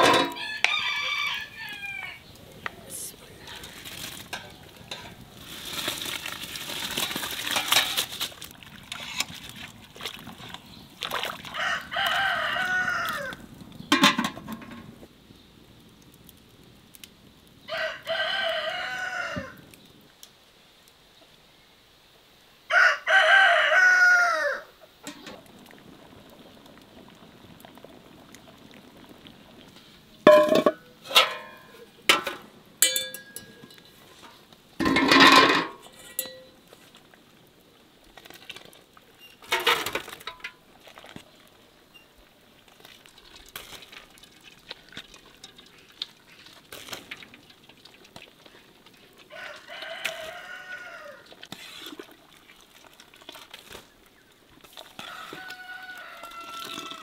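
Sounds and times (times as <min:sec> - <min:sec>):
rooster crowing: 0:00.1 - 0:02.3, 0:11.5 - 0:13.4, 0:17.7 - 0:19.6, 0:22.7 - 0:24.8, 0:49.3 - 0:51.3, 0:55.0 - 0:57.0.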